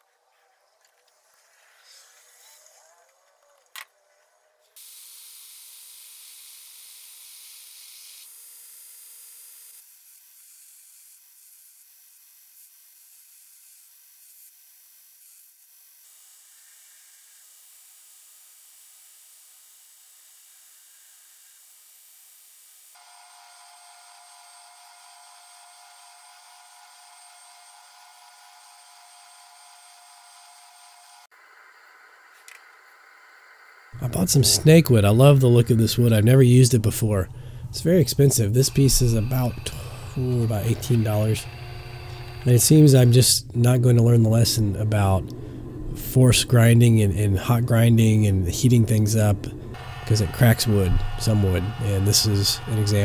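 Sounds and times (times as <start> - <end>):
belt grinder grinding metal: 23.0 - 31.3, 33.9 - 43.4, 48.6 - 53.0
sanding drum whining: 23.0 - 46.0, 47.7 - 53.0.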